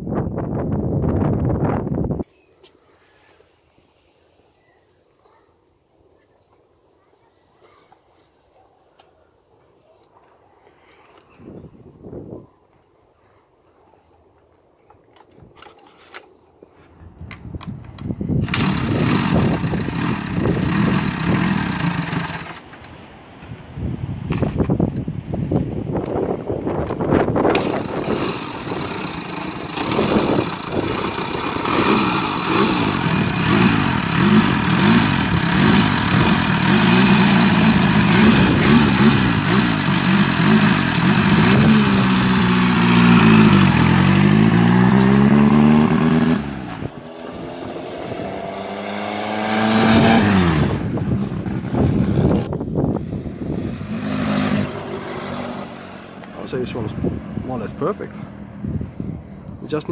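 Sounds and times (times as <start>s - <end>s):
motorcycle engine revving: 18.4s - 22.7s, 27.2s - 58.7s.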